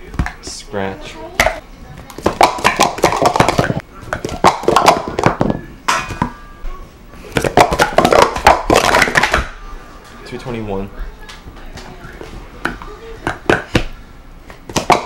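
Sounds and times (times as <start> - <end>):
plastic cups clattering: 2.2 - 6.3, 7.3 - 9.5.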